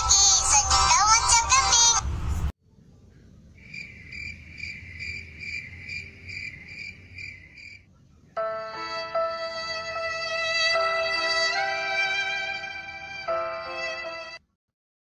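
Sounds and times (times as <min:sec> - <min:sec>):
crickets chirping: 0:03.4 - 0:07.8.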